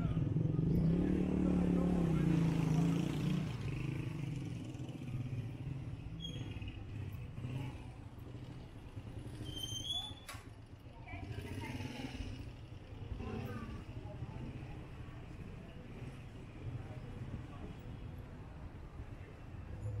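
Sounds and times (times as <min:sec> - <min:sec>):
vehicle engine passing by: 0:00.0 - 0:04.6
street traffic noise: 0:00.0 - 0:20.0.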